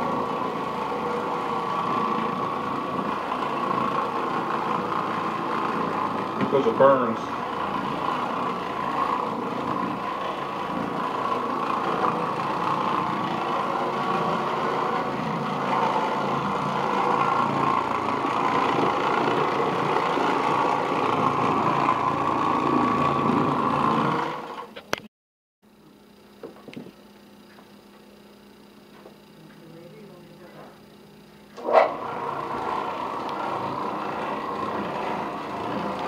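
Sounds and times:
floor machine motor running: 0.0s - 25.1s, 25.8s - 36.0s.

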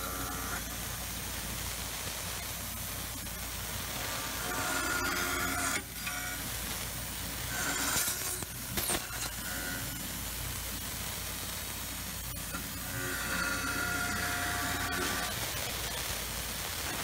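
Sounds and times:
milling machine cutting steel: 0.0s - 0.8s, 4.0s - 6.6s, 7.2s - 10.2s, 12.3s - 15.6s.

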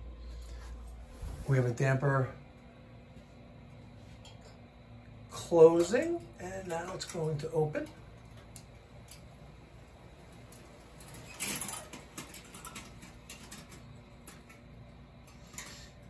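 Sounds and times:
short rustle: 0.3s - 1.7s.

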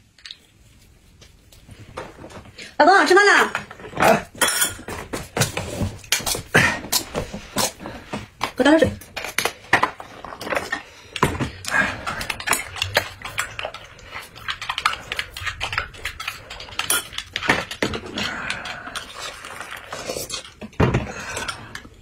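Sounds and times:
utensils clinking against glass: 4.4s - 5.0s.

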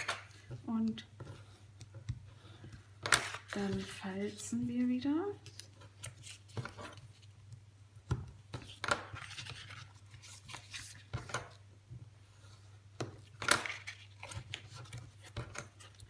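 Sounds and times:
paper rustles and scrapes: 3.1s - 7.3s, 8.7s - 11.4s.

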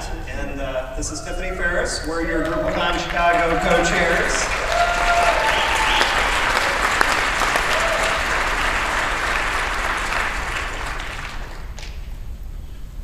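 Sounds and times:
large audience applauding: 2.3s - 12.1s.

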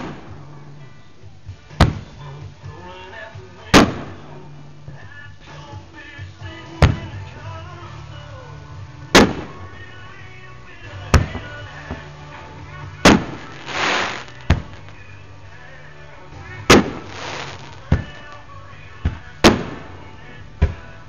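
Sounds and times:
music: 0.0s - 21.0s
firework hissing rush: 13.1s - 14.9s, 16.8s - 17.9s
firework shells bursting: 13.1s - 15.0s, 16.7s - 18.4s.

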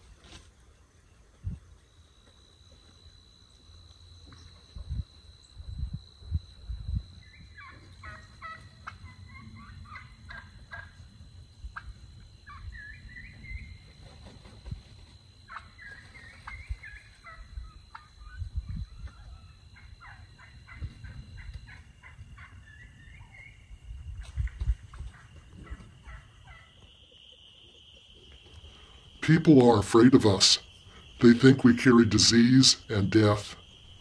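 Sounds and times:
wild turkeys calling: 7.2s - 11.1s, 11.7s - 14.2s, 15.4s - 23.8s, 24.9s - 34.0s.

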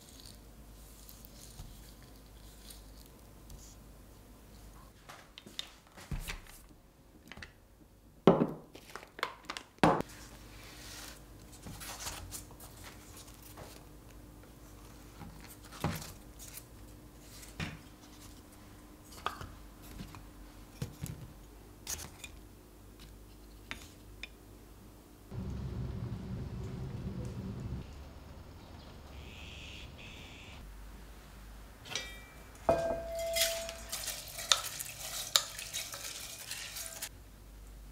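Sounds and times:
woven baskets creaking and rustling: 33.0s - 37.1s.

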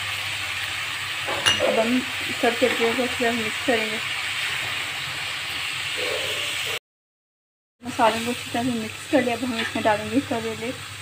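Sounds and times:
food sizzling in hot oil: 0.0s - 6.8s, 7.8s - 11.0s.

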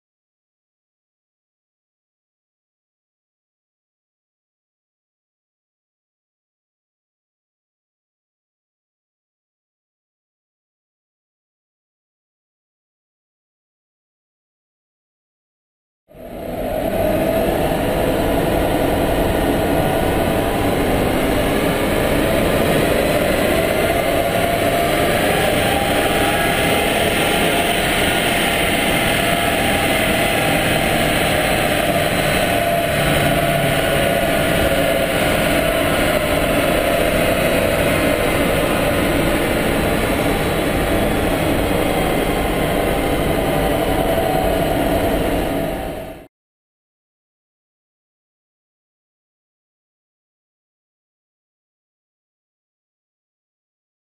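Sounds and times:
diesel engine droning under load: 16.1s - 46.3s.

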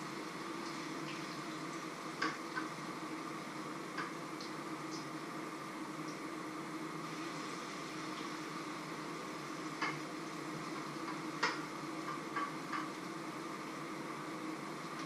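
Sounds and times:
pancakes sizzling in pans: 6.9s - 14.1s.

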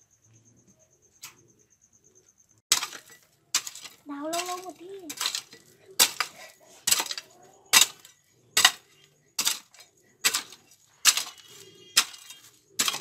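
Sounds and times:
hoe blade striking stony dirt: 2.7s - 13.0s.

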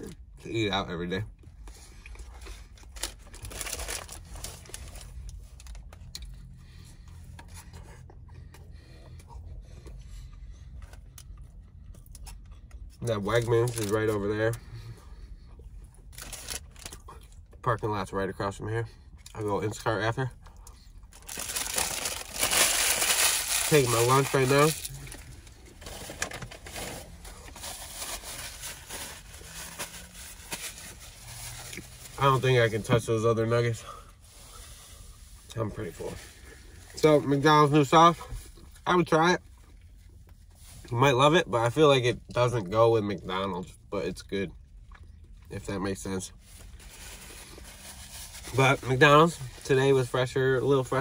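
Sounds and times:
paper wrapper crinkling: 2.8s - 5.9s, 13.4s - 14.2s, 21.1s - 32.0s
chewing and mouth clicks: 44.5s - 45.5s.

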